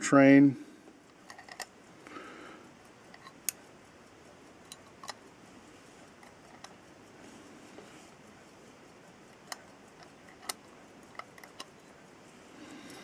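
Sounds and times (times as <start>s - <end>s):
soft rustle of handling: 5.1s - 13.0s
tweezers clicking on watch parts: 9.3s - 11.8s.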